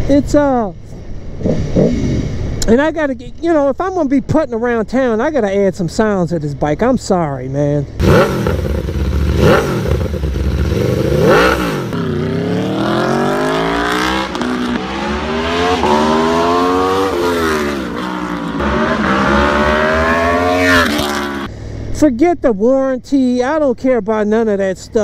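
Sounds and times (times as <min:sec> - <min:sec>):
motorcycle engine revving: 0:08.0 - 0:21.5.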